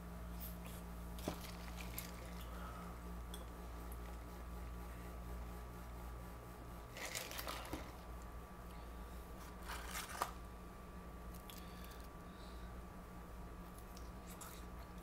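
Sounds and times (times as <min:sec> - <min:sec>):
steady low hum: 0:00.0 - 0:15.0
packaging rustling: 0:06.9 - 0:08.0, 0:09.4 - 0:10.4.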